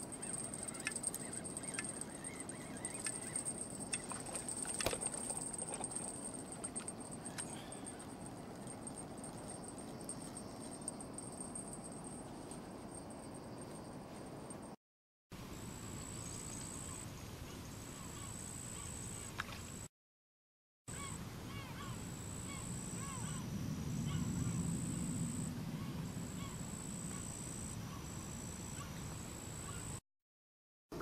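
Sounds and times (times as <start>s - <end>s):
insects trilling: 0.0s - 12.2s.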